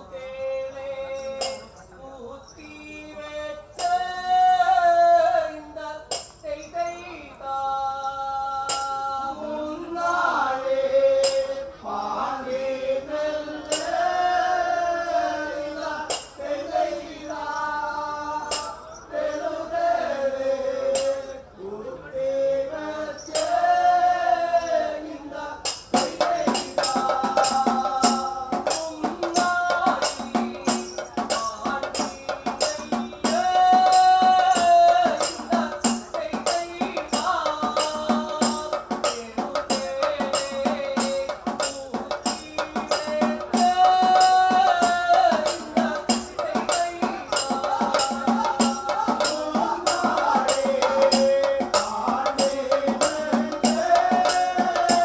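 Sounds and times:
men singing: 0:00.0 - 0:55.0
drumming and fast percussion: 0:16.0 - 0:16.4, 0:23.4 - 0:23.6, 0:25.6 - 0:55.0.

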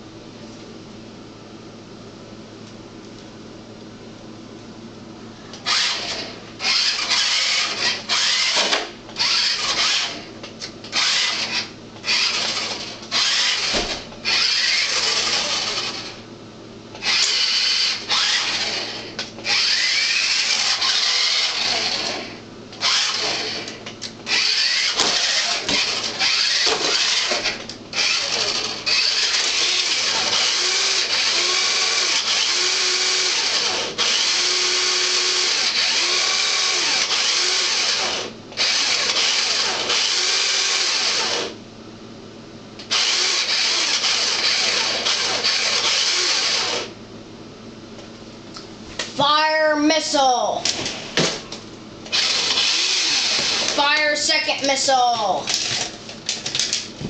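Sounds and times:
toy car electric motor whining: 0:05.6 - 0:10.3, 0:10.9 - 0:16.2, 0:17.0 - 0:41.6, 0:42.8 - 0:46.9, 0:52.1 - 0:54.4.

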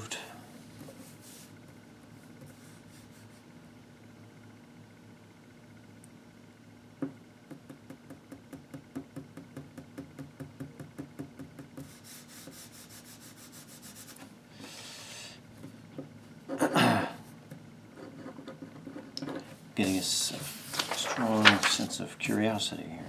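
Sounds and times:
hand rubbing across paper: 0:00.6 - 0:03.5, 0:11.8 - 0:14.3, 0:19.8 - 0:22.5
paper rustle: 0:19.8 - 0:22.5.

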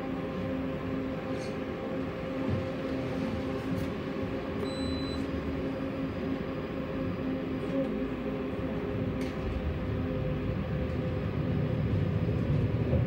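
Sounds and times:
tram rumbling and humming: 0:00.0 - 0:13.0
short high beep: 0:04.6 - 0:05.2.

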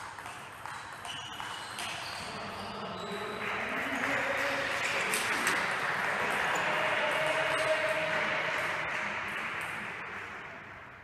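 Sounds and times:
background murmur of voices: 0:02.2 - 0:10.7.

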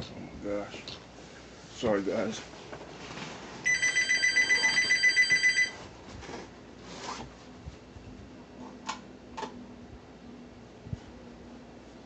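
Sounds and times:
phone ringing with electronic trill: 0:03.7 - 0:05.8.

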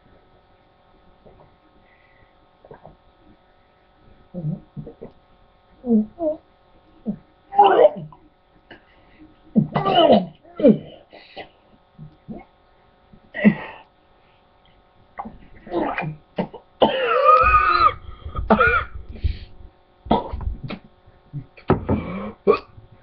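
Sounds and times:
boy groaning: 0:07.0 - 0:08.2, 0:17.1 - 0:18.9
boy gagging and coughing: 0:09.6 - 0:11.1, 0:15.7 - 0:19.0.

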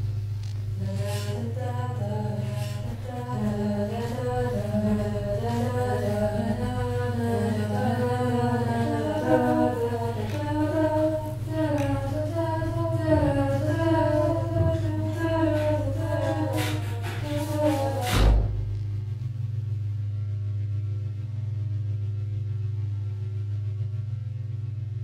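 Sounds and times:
low drone: 0:00.0 - 0:25.0
wordless singing voices: 0:00.8 - 0:18.5.

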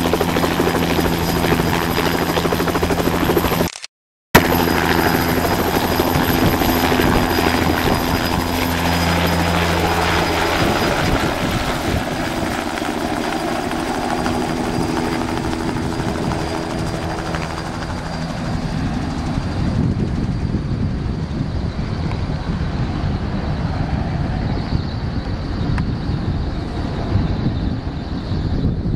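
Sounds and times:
high turbine whine: 0:00.0 - 0:03.7, 0:04.4 - 0:28.9
helicopter rotor chop: 0:00.0 - 0:03.8, 0:04.4 - 0:28.9.

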